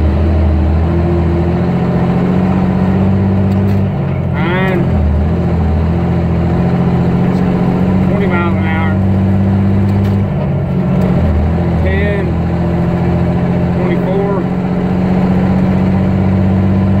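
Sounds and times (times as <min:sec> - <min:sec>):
diesel truck engine under load: 0:00.0 - 0:17.0.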